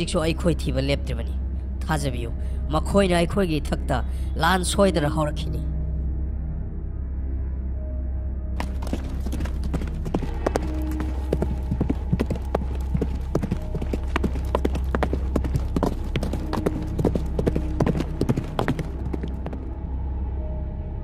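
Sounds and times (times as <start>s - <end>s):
steady low hum: 0.0s - 21.0s
hoofbeats clopping rapidly: 8.6s - 19.6s.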